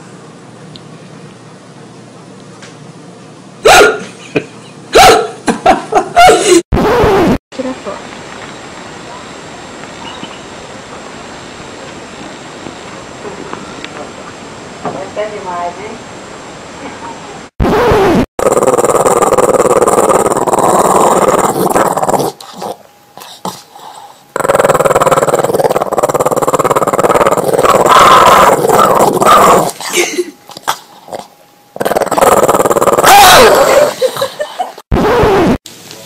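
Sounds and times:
dog growling: 0:18.4 - 0:29.9, 0:30.5 - 0:34.3.

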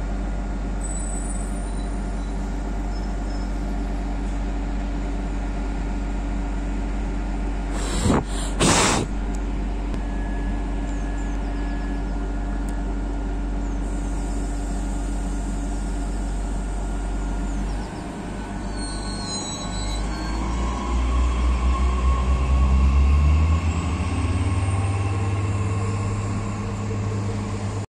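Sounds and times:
diesel railcar engine: 0:00.0 - 0:27.9
air hissing: 0:07.8 - 0:09.2.

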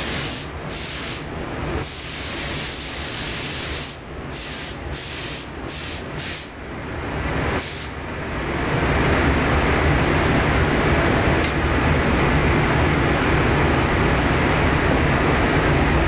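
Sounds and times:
spray gun hissing in bursts: 0:00.0 - 0:06.6, 0:07.6 - 0:08.0
steady low rumble: 0:00.0 - 0:16.0.

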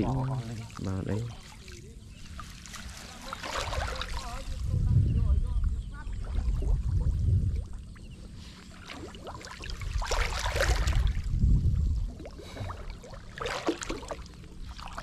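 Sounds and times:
low microphone rumble: 0:00.0 - 0:01.4, 0:04.1 - 0:13.1
water splashing and dripping: 0:00.0 - 0:04.6, 0:08.8 - 0:11.4, 0:12.1 - 0:15.0.

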